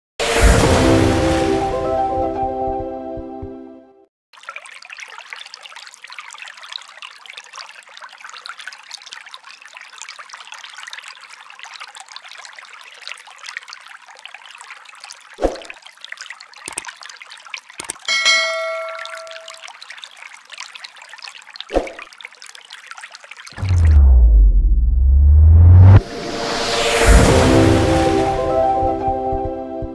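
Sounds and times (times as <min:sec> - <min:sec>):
water trickling onto pebbles: 0:04.4 - 0:24.0
sharp clicks: 0:16.7 - 0:16.9, 0:17.8 - 0:18.1
bell-like ring: 0:18.0 - 0:19.6.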